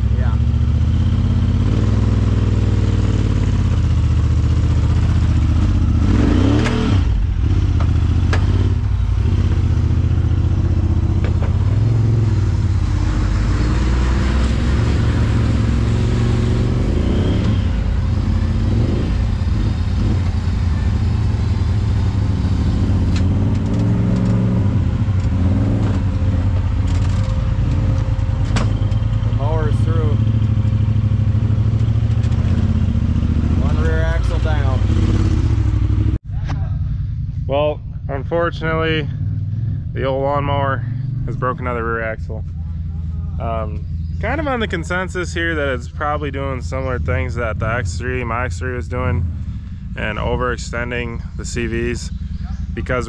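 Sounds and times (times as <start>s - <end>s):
utv engine revving: 0.0s - 53.0s
clatter and knocks: 11.2s - 11.9s, 25.2s - 29.3s.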